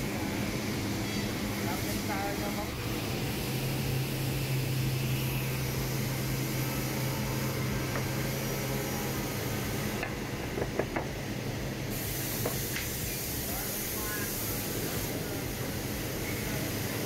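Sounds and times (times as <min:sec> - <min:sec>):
woodworking machinery humming: 0:00.0 - 0:13.4
constant hiss: 0:00.0 - 0:17.0.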